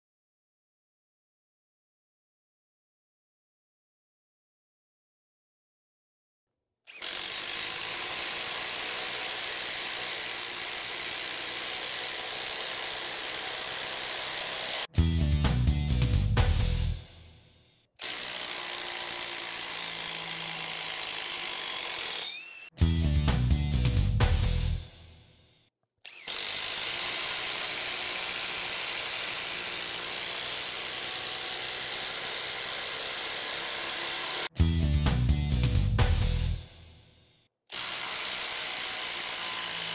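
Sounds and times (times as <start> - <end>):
impact driver hammering: 6.9 - 14.9, 26.1 - 34.5, 37.7 - 39.9.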